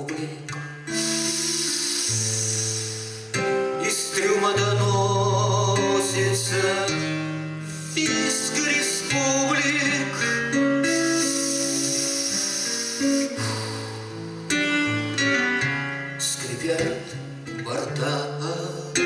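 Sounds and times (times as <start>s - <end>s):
acoustic guitar: 0.0s - 19.0s
man singing with vibrato: 0.0s - 19.0s.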